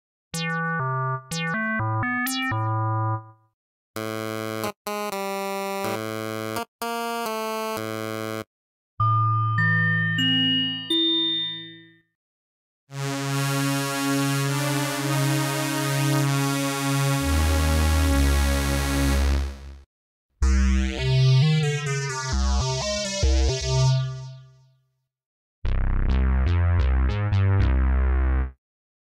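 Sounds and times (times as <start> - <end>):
fast repeating synth pattern: 0.4 - 3.3
synth bass line: 0.4 - 3.4, 20.4 - 24.4, 25.7 - 28.5
synthesizer chord: 0.4 - 3.4, 25.7 - 28.5.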